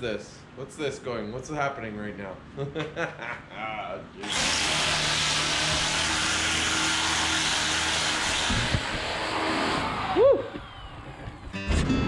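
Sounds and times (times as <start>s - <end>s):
angle grinder running: 4.2s - 10.2s.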